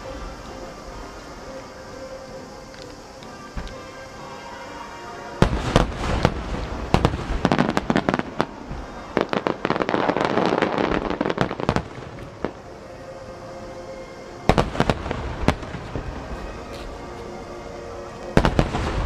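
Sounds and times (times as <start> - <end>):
music playing: 0.0 - 19.0
fireworks bursting and crackling: 5.4 - 12.8, 14.5 - 17.4, 18.2 - 19.0.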